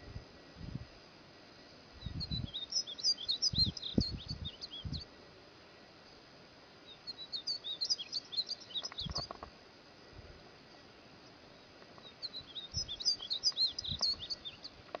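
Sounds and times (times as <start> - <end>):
finch twittering: 7.1 - 9.4, 12.2 - 14.7.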